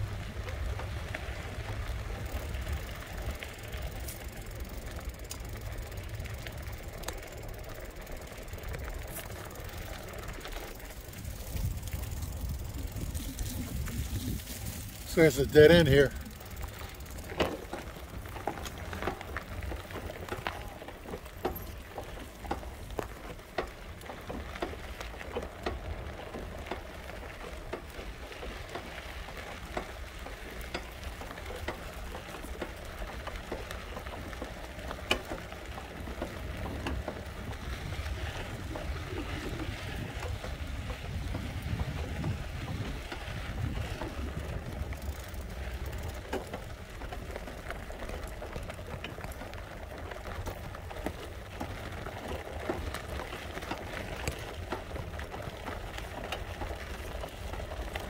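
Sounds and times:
wheels rolling over gravel: 0.0s - 58.0s
wind rumble on microphone: 11.0s - 16.6s, 36.1s - 46.0s.

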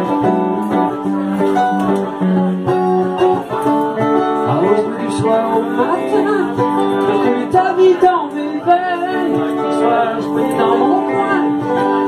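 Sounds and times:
electric guitar: 0.0s - 12.0s
live band playing folk-rock: 0.0s - 12.0s
mandolin: 0.0s - 12.0s.

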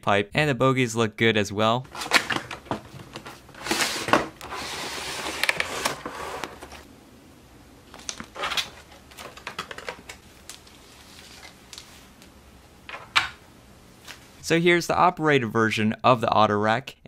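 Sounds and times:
plastic packaging scraping: 1.9s - 6.9s
plastic clicks and crinkles: 7.9s - 12.3s.

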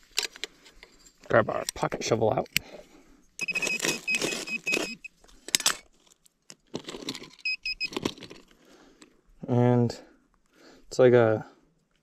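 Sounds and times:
metal detector high beeps: 3.4s - 5.1s, 7.4s - 7.9s.

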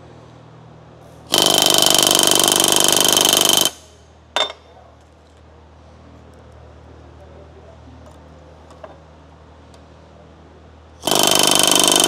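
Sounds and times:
pneumatic rivet gun bursts: 1.2s - 4.0s, 11.0s - 12.0s
high metallic ringing: 3.1s - 4.7s.

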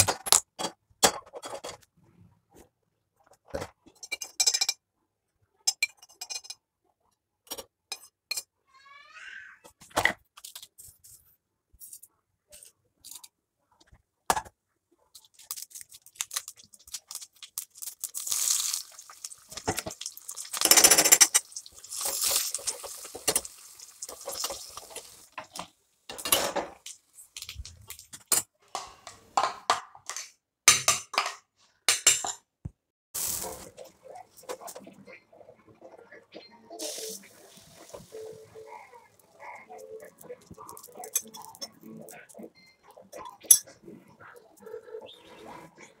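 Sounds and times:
oil sizzling: 17.1s - 25.6s, 33.2s - 34.8s, 36.7s - 41.6s.

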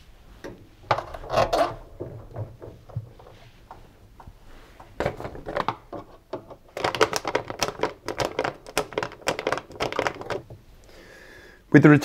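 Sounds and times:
metallic clicking and scraping: 0.4s - 6.6s.

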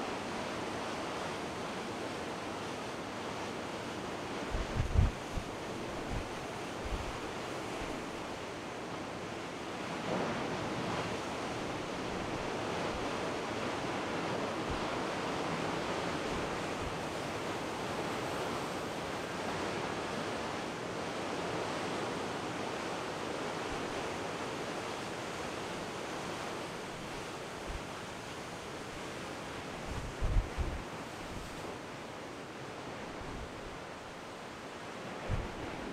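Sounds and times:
wind buffeting microphone: 4.5s - 6.3s, 29.8s - 31.5s, 35.2s - 35.9s.

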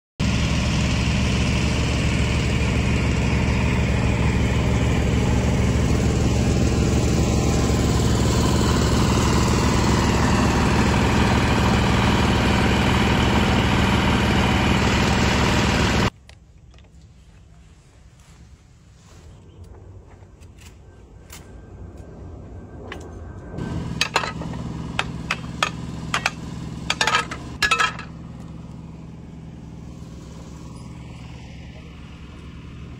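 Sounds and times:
excavator diesel engine running: 0.2s - 16.1s, 22.6s - 32.9s.

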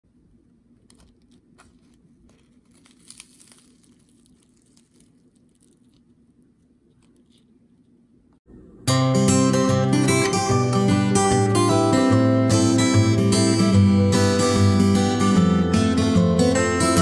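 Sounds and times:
low steady hum: 0.0s - 12.1s
fried crust crackling: 0.9s - 7.5s.

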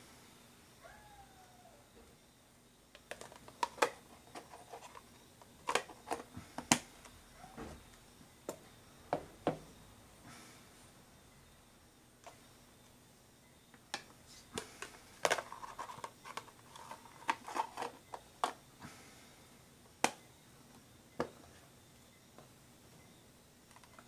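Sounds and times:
plastic containers clicking: 3.0s - 6.9s, 14.0s - 18.6s.

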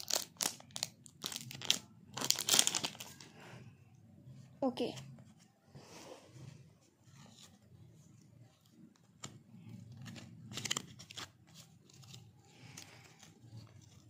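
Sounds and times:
card crackle: 0.0s - 3.3s, 9.2s - 14.0s.

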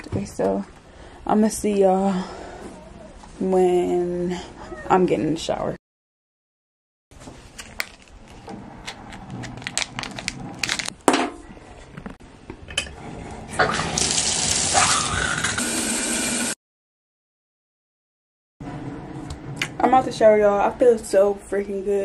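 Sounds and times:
shower spraying onto tub: 13.8s - 16.6s.

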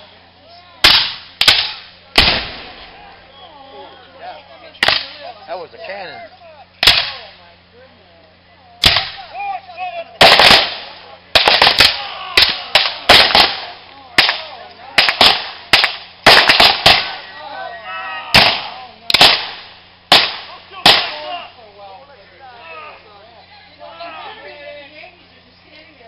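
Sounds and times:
musket shots: 0.8s - 3.0s, 6.8s - 7.2s, 8.8s - 9.2s, 10.2s - 17.2s, 18.3s - 21.3s.

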